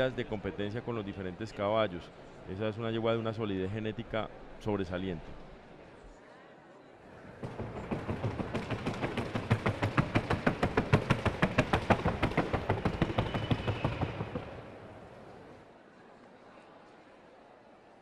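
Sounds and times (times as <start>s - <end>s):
hoofbeats on wooden board: 7.2s - 14.7s.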